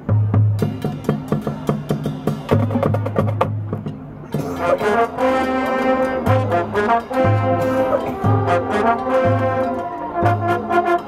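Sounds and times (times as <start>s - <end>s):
marching band playing: 0.0s - 11.0s
sharp percussion hits: 0.5s - 11.0s
low brass notes: 3.8s - 11.0s.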